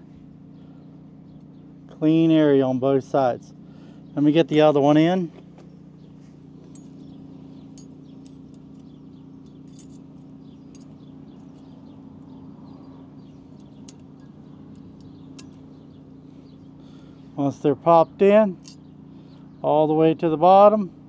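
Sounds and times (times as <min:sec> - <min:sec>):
steady low hum: 0:00.0 - 0:21.0
metallic clicks and clinks: 0:06.6 - 0:07.1, 0:07.7 - 0:12.0, 0:12.7 - 0:15.7.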